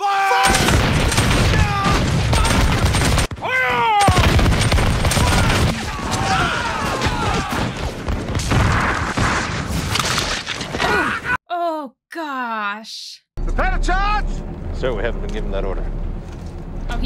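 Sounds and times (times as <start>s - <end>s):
musket fire volleys: 0.4s - 10.9s
men shouting: 5.1s - 7.8s.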